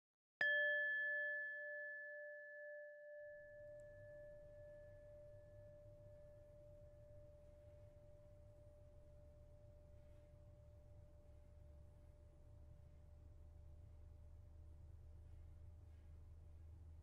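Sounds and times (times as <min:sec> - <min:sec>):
bell-like chime ringing: 0:00.4 - 0:07.2
faint low rumble: 0:05.0 - 0:17.0.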